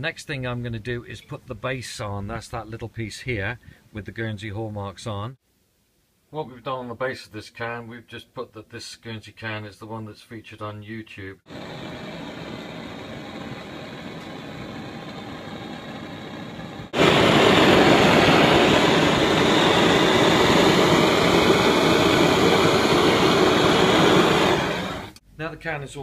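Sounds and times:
gas torch flame rushing: 11.5 - 25.2.

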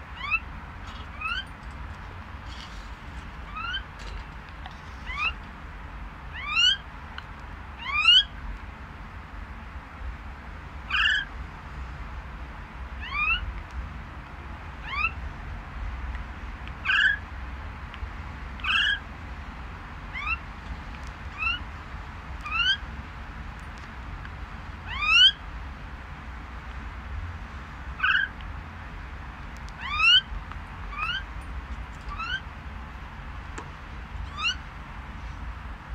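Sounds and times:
myna bird rising calls: 3.5 - 3.9, 4.9 - 5.4, 10.9 - 11.3, 18.6 - 19.0, 20.1 - 20.4, 21.4 - 21.6, 22.4 - 22.8, 24.9 - 25.4, 28.0 - 28.4, 29.8 - 30.3, 30.9 - 31.3, 32.1 - 32.5, 34.2 - 34.7.

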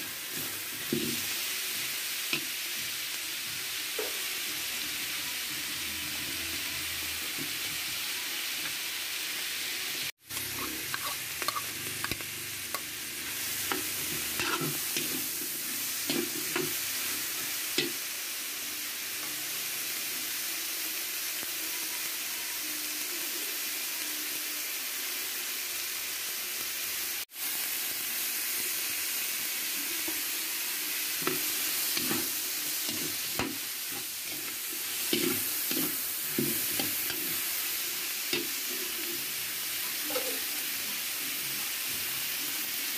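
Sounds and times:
food sizzling in a wok: 0.0 - 42.9
metal spatula scraping pan: 10.4 - 12.2, 13.7 - 15.4.

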